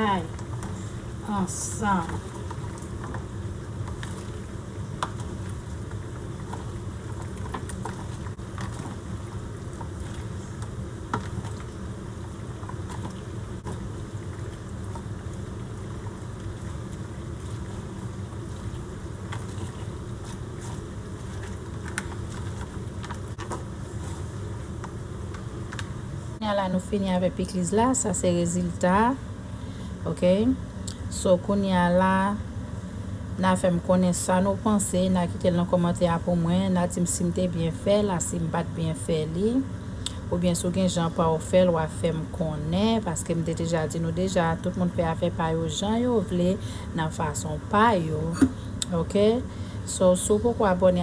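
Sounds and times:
low mechanical hum: 0.0s - 51.0s
gloved hands rustling food: 1.8s - 26.0s.

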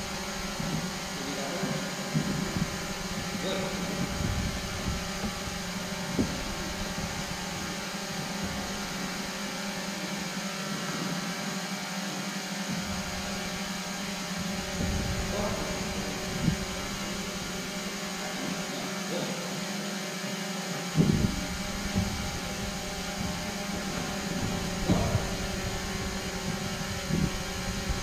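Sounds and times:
sports hall hum: 0.0s - 28.0s
short knocks: 20.9s - 28.0s.

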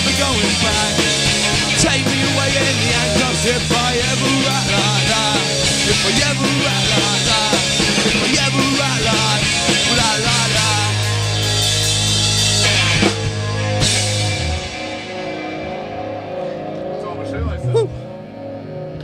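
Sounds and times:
punk rock band playing: 0.0s - 18.4s
bass guitar held note: 17.2s - 18.2s.

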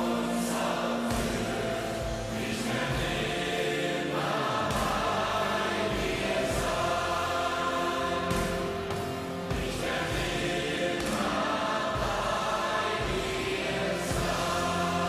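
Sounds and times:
choir singing over music: 0.0s - 15.0s.

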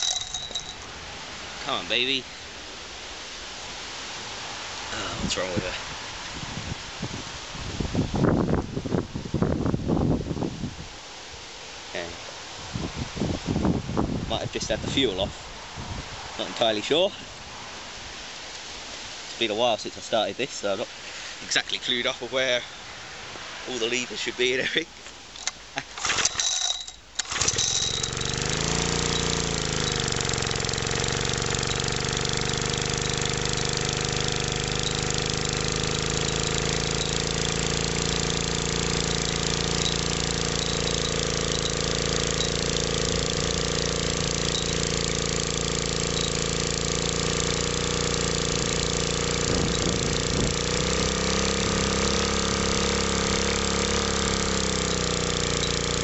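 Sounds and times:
small engine idling: 0.0s - 2.6s, 25.4s - 56.0s.

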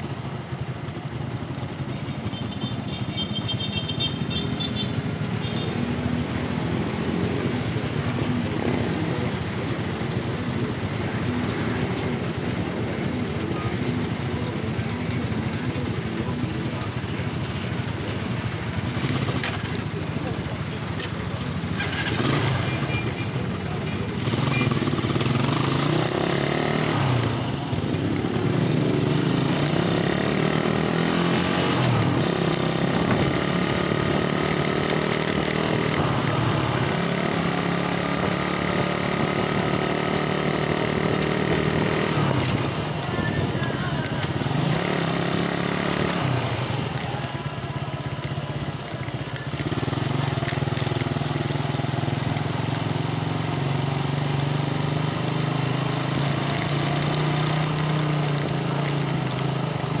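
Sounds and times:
motorcycle engine accelerating: 0.0s - 60.0s.

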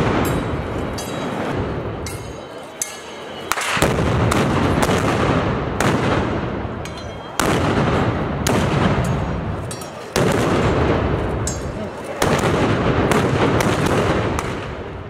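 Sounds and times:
gunshot blasts echoing: 3.5s - 6.7s, 7.4s - 9.6s, 10.2s - 11.5s, 12.2s - 15.0s.

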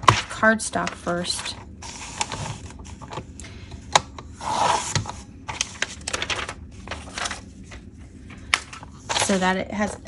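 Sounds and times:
paper rustling and shuffling: 0.0s - 3.3s, 4.4s - 10.0s.

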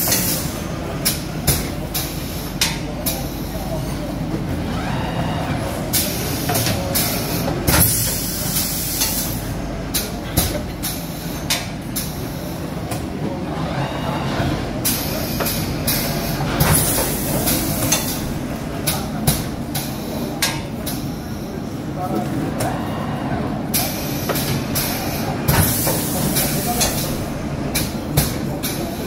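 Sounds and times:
pneumatic grippers clacking: 0.0s - 4.0s, 5.9s - 13.1s, 14.8s - 21.3s, 23.7s - 29.0s.

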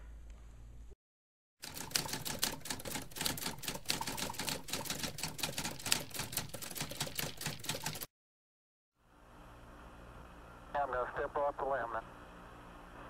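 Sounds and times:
typewriter keys clacking: 1.6s - 8.1s.

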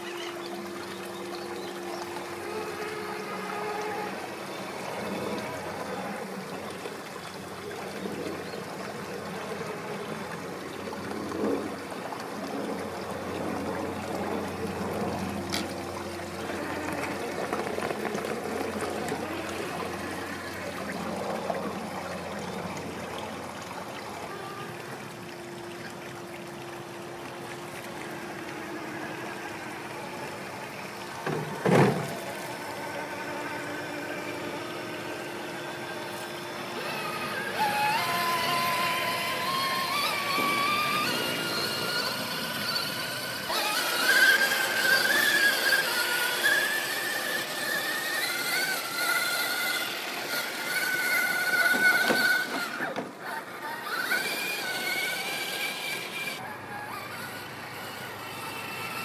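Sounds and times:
electric motor whine: 0.0s - 59.0s
stream water trickling: 0.0s - 59.0s.

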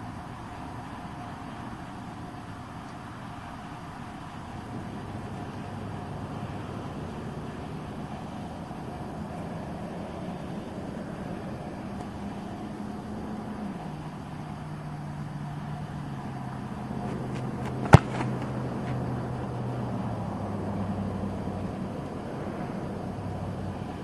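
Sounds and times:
low engine-like hum: 0.0s - 24.0s
foot kicking a football: 17.0s - 19.1s.

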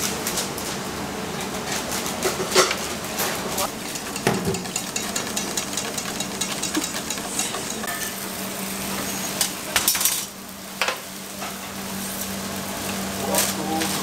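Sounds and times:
wire whisk beating in metal bowl: 3.7s - 7.9s.

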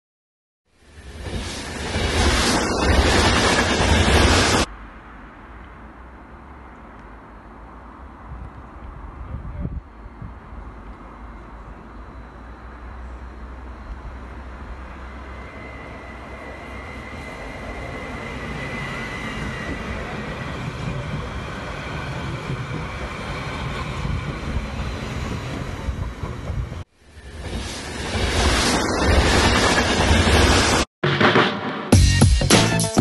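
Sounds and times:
train wheels rumbling on rails: 0.9s - 4.8s, 12.9s - 30.9s.

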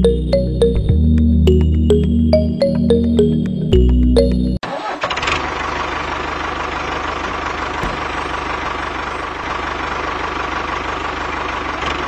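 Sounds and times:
tractor engine idling: 4.7s - 12.0s.

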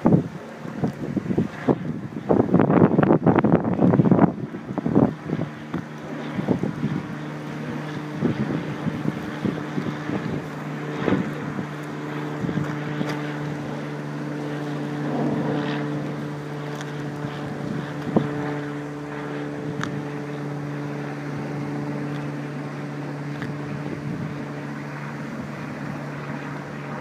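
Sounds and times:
machine hum: 0.0s - 27.0s.

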